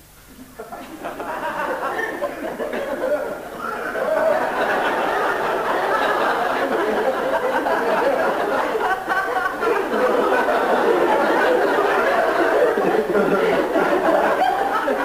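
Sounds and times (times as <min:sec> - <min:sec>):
audience laughing: 0:00.6 - 0:15.0.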